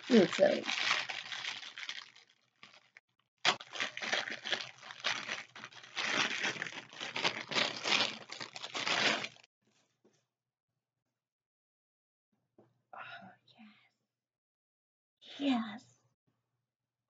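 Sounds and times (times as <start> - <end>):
plastic bag crinkling: 0.0 - 9.5.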